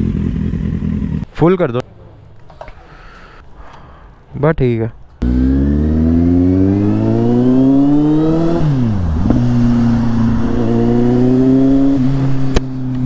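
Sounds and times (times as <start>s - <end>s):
motorcycle engine revving: 0.0s - 1.3s, 5.2s - 13.0s.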